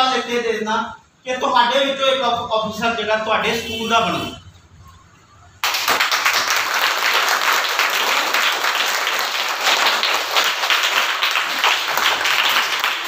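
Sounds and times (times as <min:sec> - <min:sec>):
children clapping: 0:05.6 - 0:13.0.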